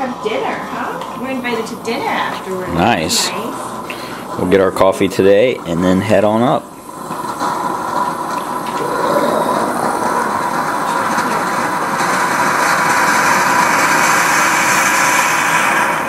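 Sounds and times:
espresso machine steam hissing: 0.0s - 16.0s.

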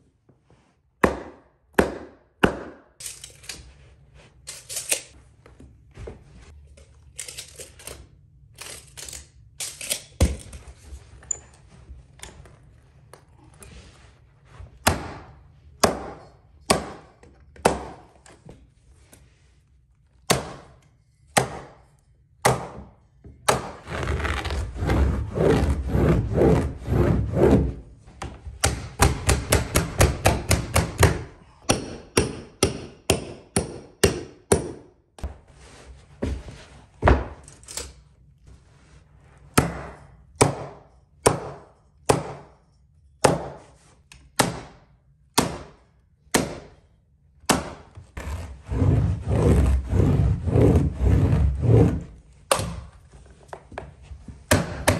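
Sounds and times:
rubbing and scraping on carpet: 10.7s - 14.8s, 23.8s - 28.2s, 35.2s - 37.0s, 38.4s - 39.5s, 48.2s - 52.2s.

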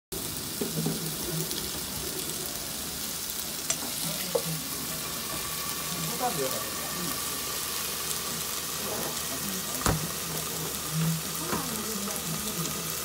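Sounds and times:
food sizzling on a griddle: 0.1s - 13.0s.

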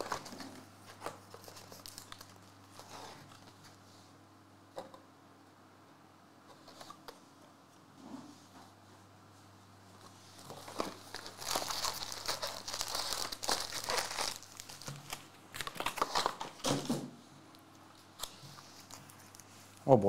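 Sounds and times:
foil wrappers crinkling: 0.0s - 3.6s, 10.4s - 16.8s.

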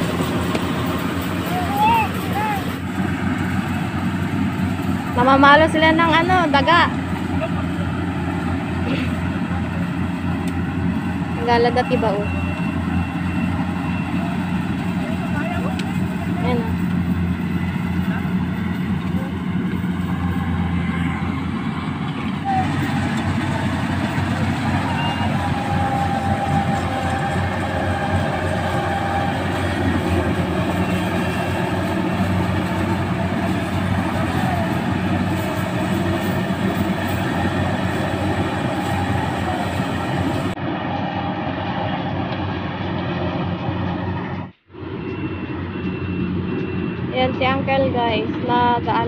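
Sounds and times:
diesel engine droning: 0.0s - 49.0s.

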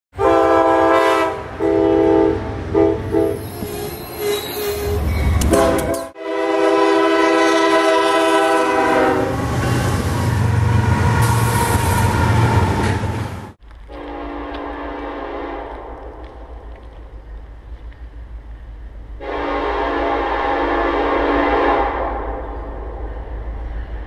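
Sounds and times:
locomotive air horn blasts: 0.2s - 3.5s, 5.4s - 12.1s, 13.9s - 15.9s, 19.2s - 22.4s
train rumble and wheel noise: 0.2s - 24.0s.

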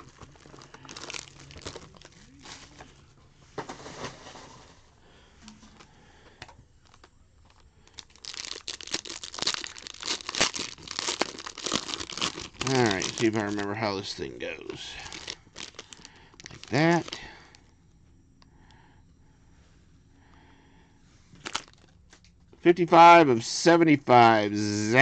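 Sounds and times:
foil wrapper tearing: 0.0s - 2.9s, 6.8s - 17.3s, 21.4s - 22.0s
packaging crinkling: 0.0s - 3.0s, 6.8s - 17.6s, 21.4s - 22.2s.

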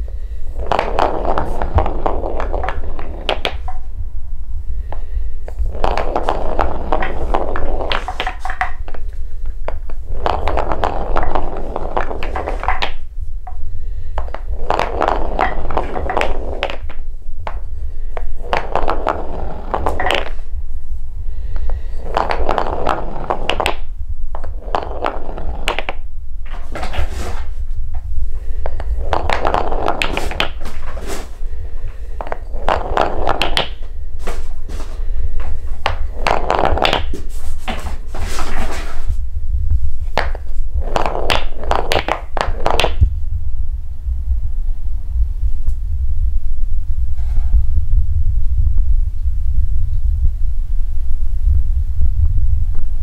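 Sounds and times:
balls clacking together: 0.5s - 4.0s, 4.9s - 20.6s, 21.5s - 39.2s, 40.0s - 43.1s
balls rolling on wooden track: 0.5s - 4.0s, 5.4s - 20.5s, 21.6s - 39.2s, 40.0s - 43.1s.

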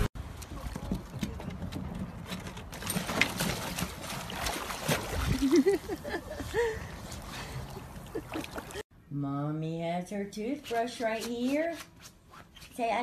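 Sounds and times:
water splashing and sloshing: 0.0s - 8.9s.

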